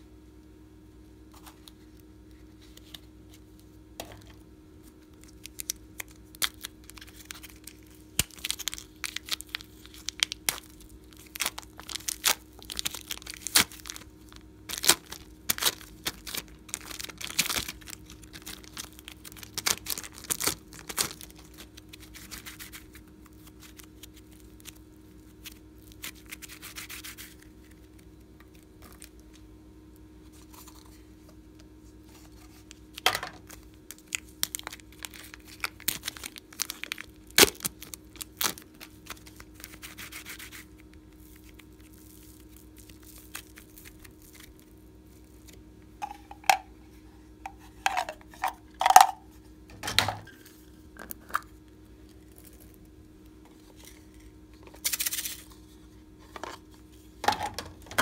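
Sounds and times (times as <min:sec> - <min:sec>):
slime crackling and rubbing: 0:05.2 - 0:27.9, 0:33.5 - 0:46.4.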